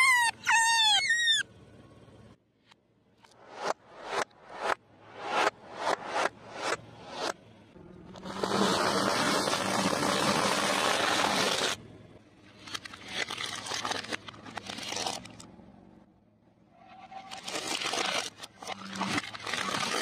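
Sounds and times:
crunching and crackling: 12.5 - 15.5.

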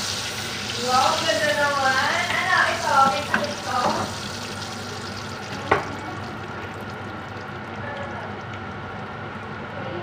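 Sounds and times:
fat sizzling in a frying pan: 0.0 - 7.3.

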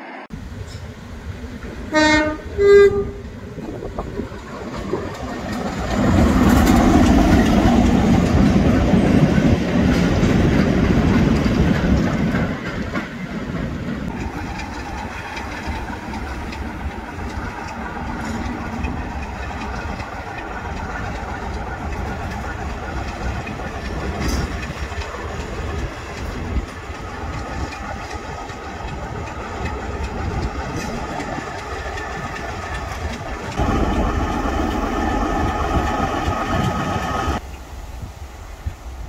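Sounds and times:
diesel locomotive engine: 0.0 - 39.0
two-tone locomotive horn: 1.9 - 3.3
wheels clacking over rails: 3.0 - 37.4.

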